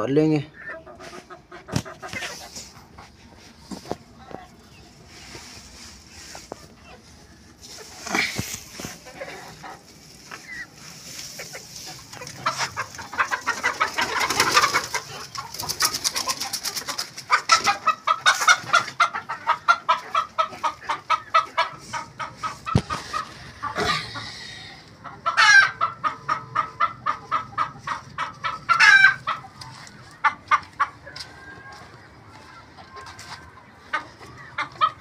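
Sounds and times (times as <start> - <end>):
chicken clucking: 0.0 - 35.0
straw rustling: 2.0 - 16.2.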